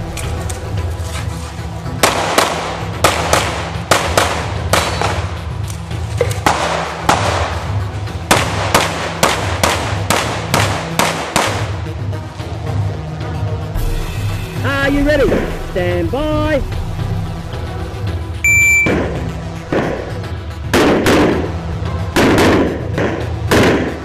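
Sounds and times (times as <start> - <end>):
pistol shots: 2.0 - 5.4, 6.4 - 11.8, 20.7 - 24.0.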